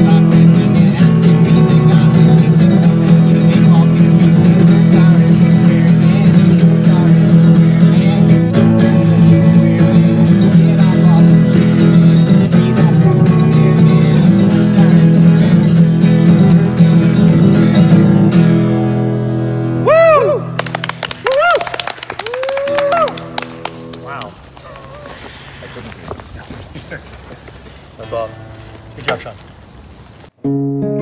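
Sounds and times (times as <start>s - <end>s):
acoustic guitar strumming: 0.0s - 22.0s, 22.8s - 24.6s, 28.0s - 29.4s, 30.3s - 31.0s.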